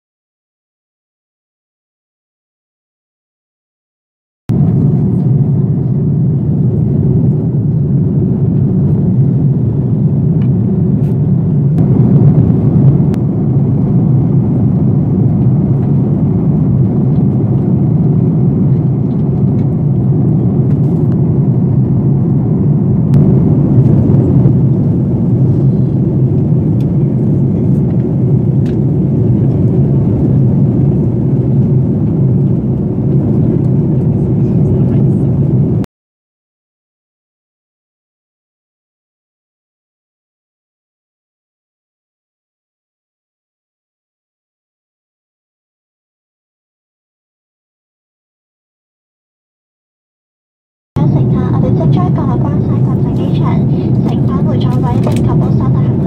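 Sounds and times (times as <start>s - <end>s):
airliner cabin drone: 4.5s - 35.9s, 51.0s - 56.0s.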